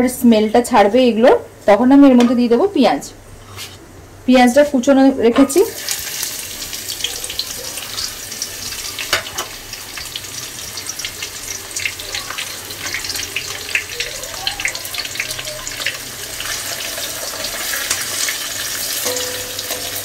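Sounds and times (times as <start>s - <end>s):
onions sizzling in hot oil: 5.5s - 20.0s.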